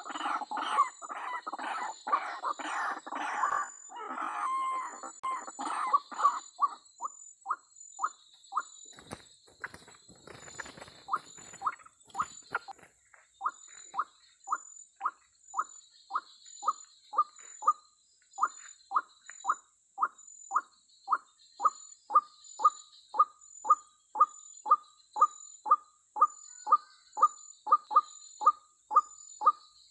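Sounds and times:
bird wings flapping: 0:08.9 - 0:13.0.

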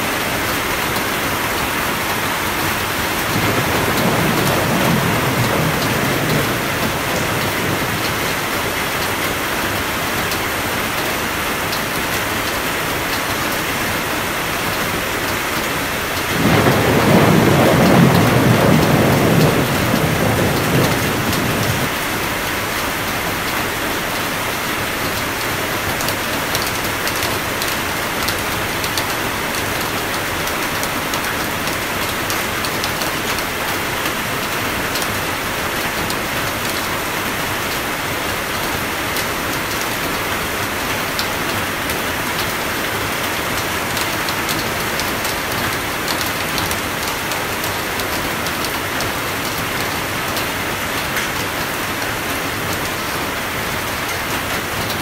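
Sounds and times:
steady rain: 0:00.0 - 0:55.0
thunder rumbling: 0:00.7 - 0:09.3, 0:16.3 - 0:22.5.

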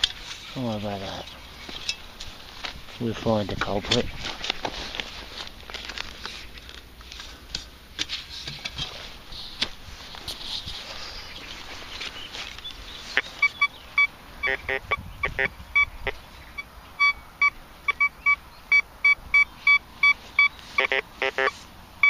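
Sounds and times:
metal detector beeping: 0:13.1 - 0:21.6.

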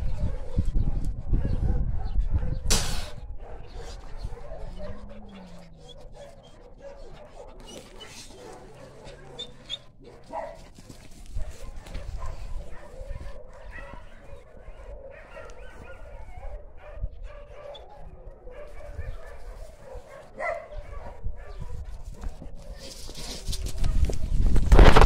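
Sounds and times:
dogs barking and yipping: 0:00.0 - 0:24.3.

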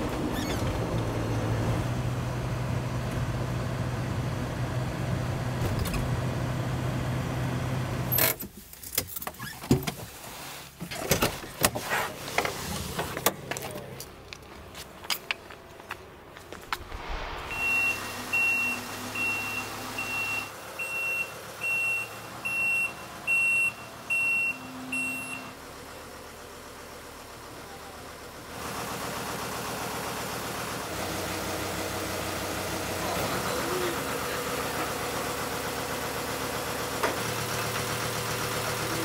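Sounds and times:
engine running: 0:12.9 - 0:39.0
vehicle warning beeper: 0:17.5 - 0:25.6.

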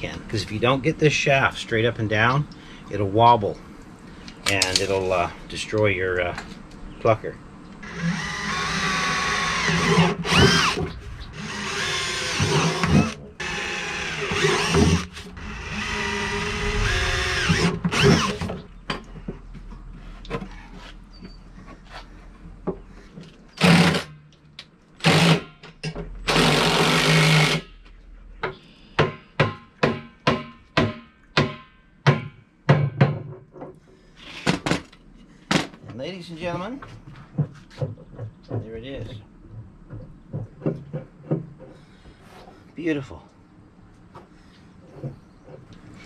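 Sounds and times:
cordless drill whining: 0:07.8 - 0:18.6, 0:23.6 - 0:24.1, 0:26.3 - 0:27.7
sharp knocks: 0:28.4 - 0:33.8.

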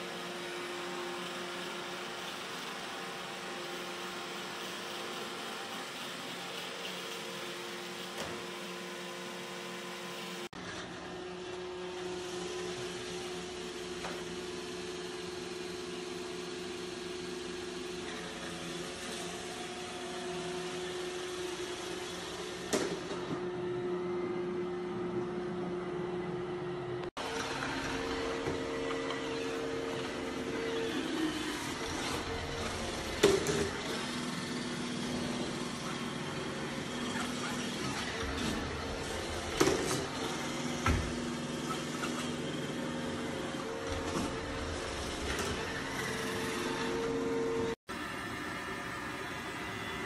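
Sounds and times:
robot vacuum motor hum: 0:27.2 - 0:50.0.

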